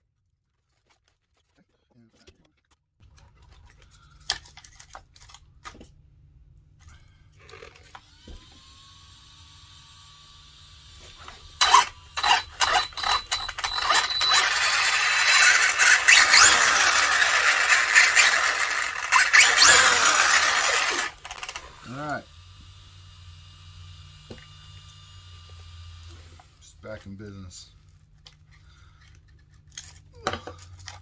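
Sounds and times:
clicks and handling noise: 0.6s - 6.0s, 11.2s - 19.9s, 20.7s - 21.7s
mechanical clatter of gears: 11.6s - 21.8s.

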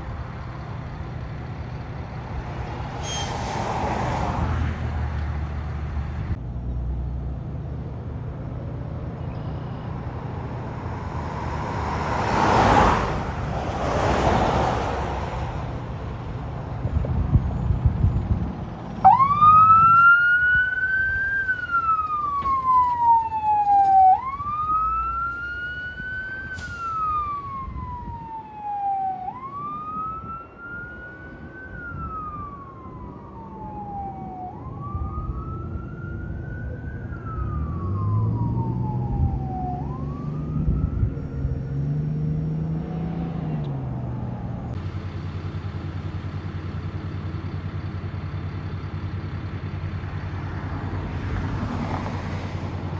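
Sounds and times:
steady engine hum: 0.0s - 52.9s
siren wailing: 19.0s - 43.8s
engine revving and accelerating: 37.2s - 44.8s.

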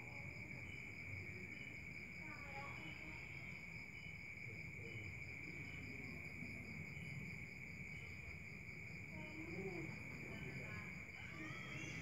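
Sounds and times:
crickets chirring: 0.0s - 12.0s
pulsing insect trill: 0.0s - 12.0s.

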